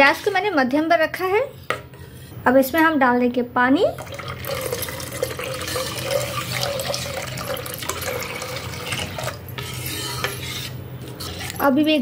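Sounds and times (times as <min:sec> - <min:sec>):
water pouring and splashing into pot: 0:04.0 - 0:09.4
ladle stirring and knocking pot: 0:04.0 - 0:11.7.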